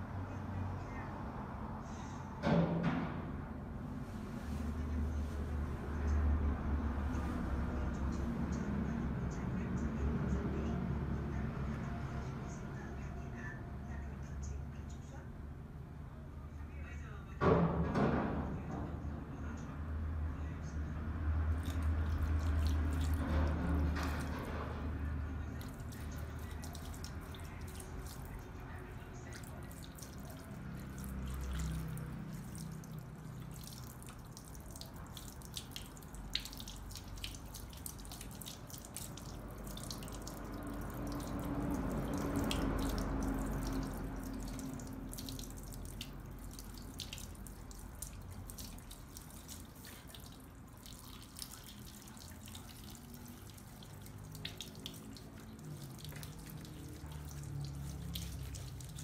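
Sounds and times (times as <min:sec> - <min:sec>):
water drips and splashes: 0:21.3 - 0:59.0
water spraying over hair: 0:21.5 - 0:59.0.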